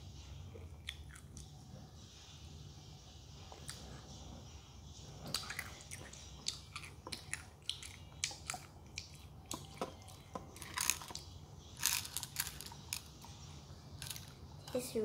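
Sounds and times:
crunchy candy being chewed: 0.8 - 1.6, 5.2 - 13.1.

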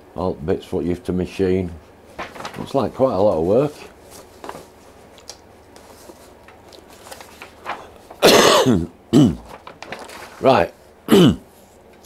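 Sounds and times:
paper sheets rustling: 2.0 - 8.3, 9.4 - 12.0
man coughing: 8.2 - 9.5, 11.1 - 11.5.

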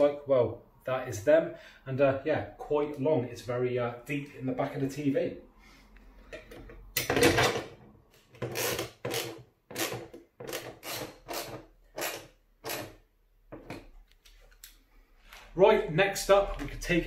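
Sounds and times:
hand tool scraping bolts: 8.4 - 13.0.

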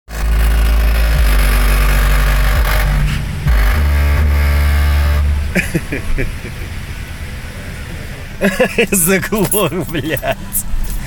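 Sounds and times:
buzzing rattle: 0.1 - 5.6
subwoofer deep bass tones: 0.1 - 11.0.

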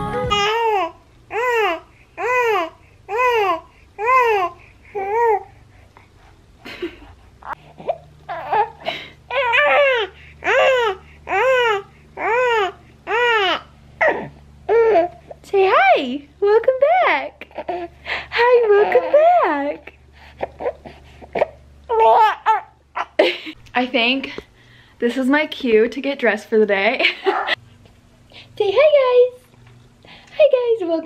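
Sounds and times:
baby crying: 0.0 - 5.5, 7.4 - 15.2, 17.5 - 19.5, 21.9 - 23.2.

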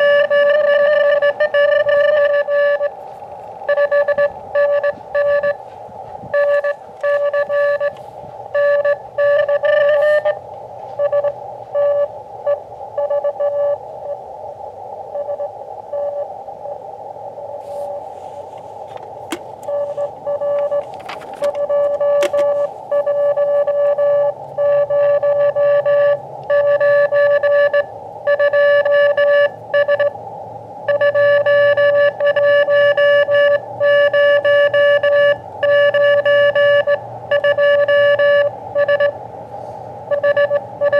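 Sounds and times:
morse code tone: 0.0 - 3.0, 3.7 - 5.6, 6.3 - 10.4, 11.0 - 14.2, 15.1 - 16.3, 19.6 - 30.2, 30.9 - 39.2, 40.1 - 40.9
receiver hiss: 0.0 - 31.5.

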